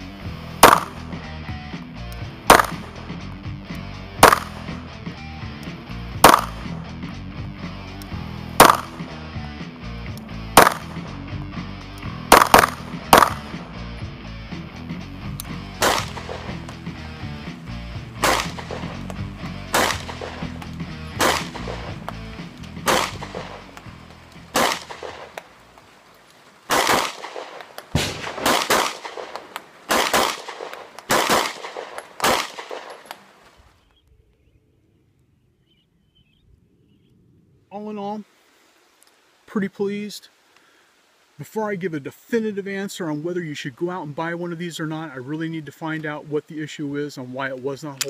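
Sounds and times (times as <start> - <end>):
background music: 0.0 - 25.4
pistol shots: 0.6 - 1.1, 2.4 - 3.0, 4.2 - 4.8, 6.2 - 6.8, 8.6 - 9.1, 10.6 - 11.0, 12.3 - 13.6, 15.8 - 16.8, 18.2 - 22.2, 22.8 - 23.9, 24.5 - 25.4, 26.7 - 33.2.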